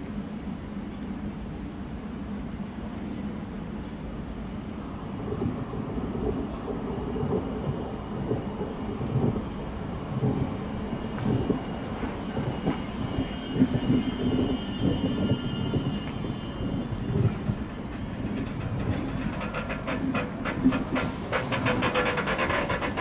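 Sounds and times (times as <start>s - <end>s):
train rumbling on rails: 0.0s - 23.0s
wheels knocking and clattering: 17.1s - 23.0s.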